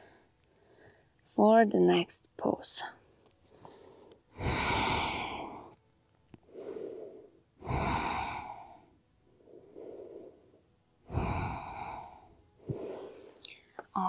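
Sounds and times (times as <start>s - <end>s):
woman breathing deeply: 0.0s - 1.2s, 3.4s - 5.8s, 6.4s - 13.8s.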